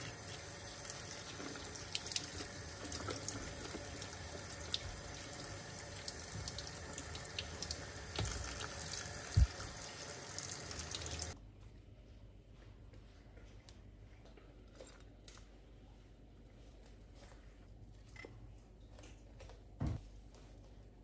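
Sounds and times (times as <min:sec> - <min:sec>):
tap water running into sink: 0:00.0 - 0:11.4.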